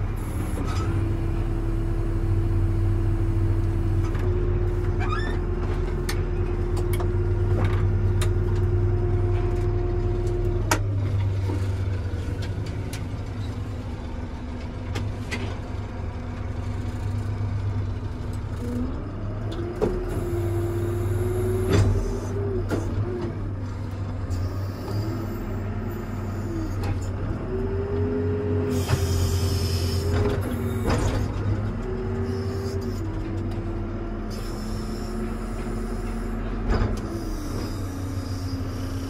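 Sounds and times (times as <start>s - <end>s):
diesel engine low rumble: 0.0s - 39.0s
hydraulic whine: 28.6s - 31.4s, 34.2s - 39.0s.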